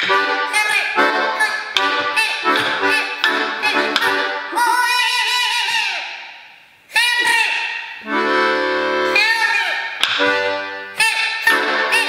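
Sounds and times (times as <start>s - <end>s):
accordion held wavering tone: 0.0s - 4.5s, 8.0s - 9.2s, 10.2s - 12.0s
accordion chords: 0.0s - 5.0s, 8.0s - 12.0s.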